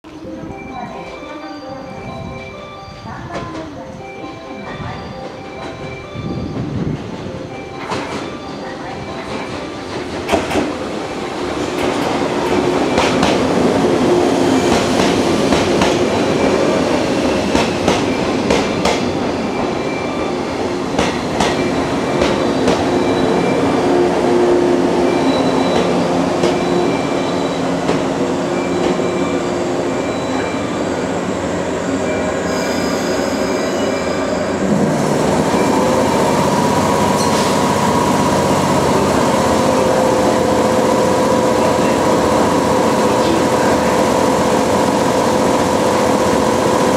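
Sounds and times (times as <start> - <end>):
standing train hum: 0.1 - 46.9
train wheels clicking over rail joints: 9.3 - 10.8.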